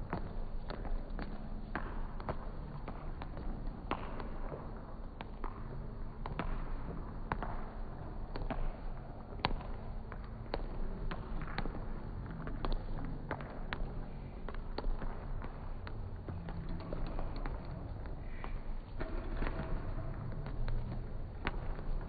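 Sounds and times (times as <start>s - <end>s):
footfalls on hall floor: 0.0s - 22.0s.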